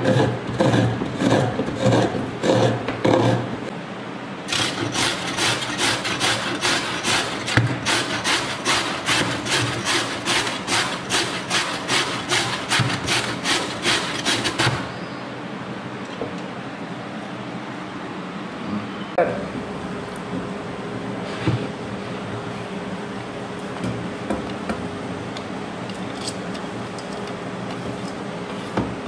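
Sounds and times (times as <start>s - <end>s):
carrot rasping on grater: 0.0s - 3.5s, 4.5s - 14.9s.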